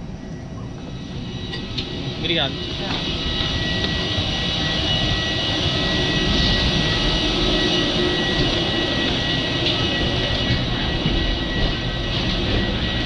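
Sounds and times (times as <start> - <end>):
aircraft turbine whine: 0.0 - 13.0.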